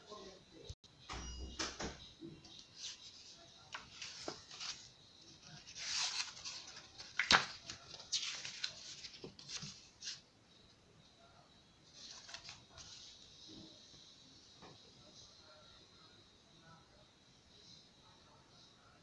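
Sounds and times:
book pages turning: 0:02.8 - 0:10.2, 0:12.0 - 0:13.2.

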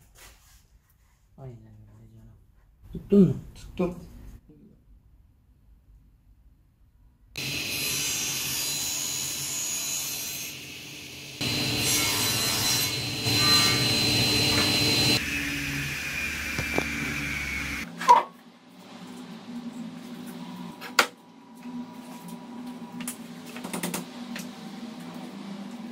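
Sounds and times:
table saw cutting wood: 0:07.4 - 0:17.9
thin high whine: 0:13.0 - 0:17.8.

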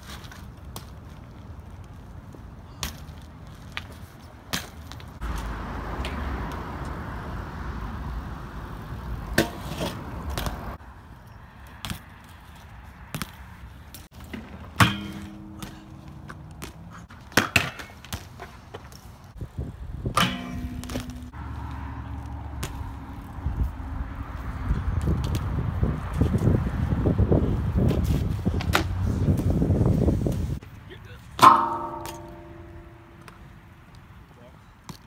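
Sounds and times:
bike tyres rolling on concrete: 0:00.0 - 0:35.0
loud metallic impact: 0:20.2 - 0:21.4, 0:31.4 - 0:33.2.

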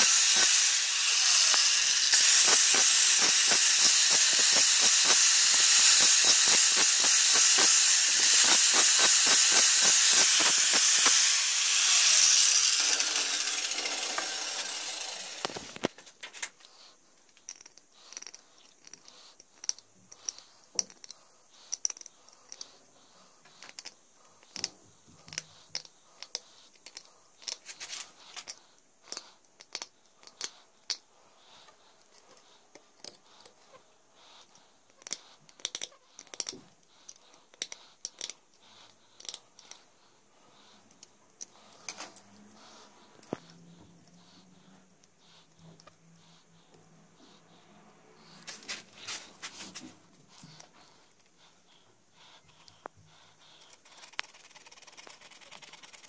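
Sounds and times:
angle grinder spinning down: 0:00.0 - 0:15.9
blade scraping bone: 0:00.0 - 0:15.9, 0:45.2 - 0:51.2, 0:52.2 - 0:56.0.

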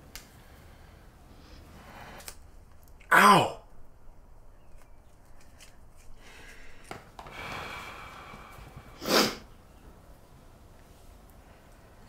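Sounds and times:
person breathing: 0:00.3 - 0:02.4, 0:06.1 - 0:09.5
sharp puff through the nose: 0:09.0 - 0:09.5.

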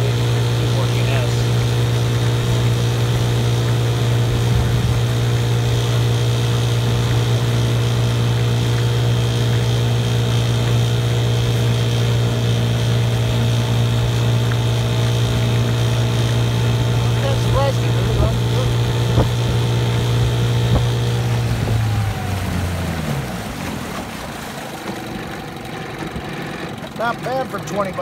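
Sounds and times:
outboard motor running: 0:00.0 - 0:28.0
wake churning: 0:00.0 - 0:28.0.

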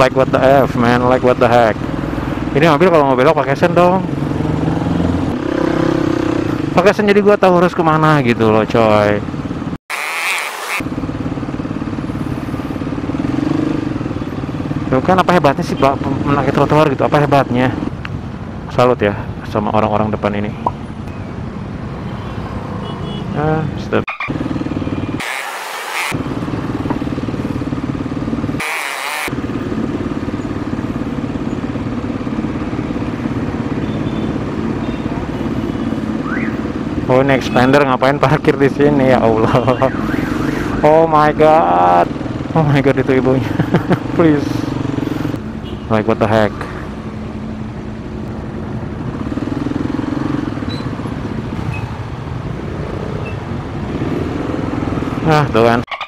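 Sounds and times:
motorcycle engine running: 0:10.8 - 0:16.4, 0:26.1 - 0:37.0
motorcycle engines idling: 0:40.8 - 0:49.1.

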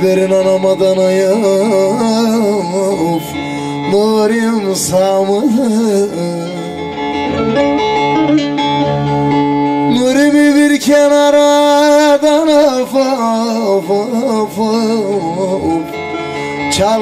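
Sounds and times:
man singing folk song: 0:00.0 - 0:07.6, 0:09.6 - 0:17.0
long-necked lute playing: 0:00.0 - 0:10.2.

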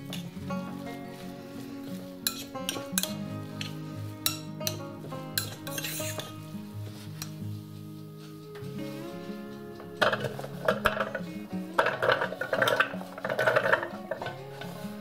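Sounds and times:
spoon stirring wet vegetables: 0:00.0 - 0:07.6, 0:08.9 - 0:15.0
background music: 0:00.0 - 0:15.0
spoon clinking against glass: 0:02.2 - 0:06.4.

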